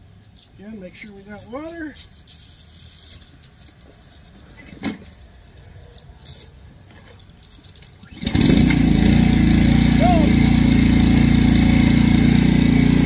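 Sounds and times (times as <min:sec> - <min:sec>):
small engine pull-started and running: 0:07.2 - 0:13.0.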